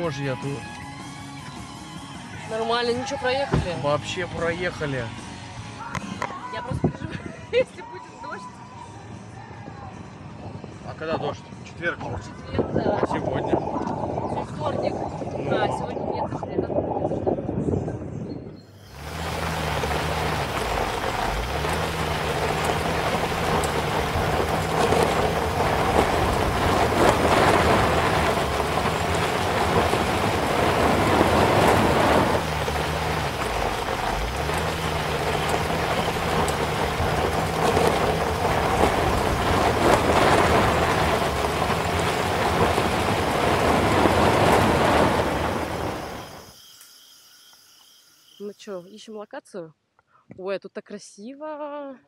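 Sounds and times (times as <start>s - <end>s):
car engine hum: 18.8s - 46.4s
tyre and road noise: 18.8s - 46.5s.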